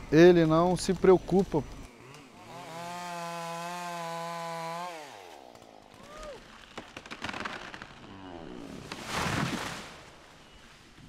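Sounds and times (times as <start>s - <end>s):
chainsaw engine revving: 1.4s - 8.8s
clicks and crackles: 5.5s - 8.1s.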